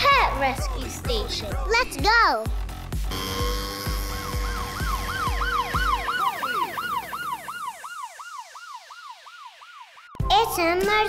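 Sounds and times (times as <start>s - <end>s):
low beat: 2.5s - 6.4s
siren wailing: 3.1s - 10.2s.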